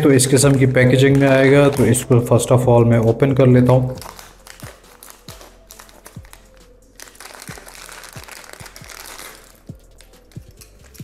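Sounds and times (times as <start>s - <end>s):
background music: 0.0s - 11.0s
plastic bag crinkling: 0.1s - 2.4s, 3.8s - 11.0s
scissors cutting plastic: 4.0s - 11.0s.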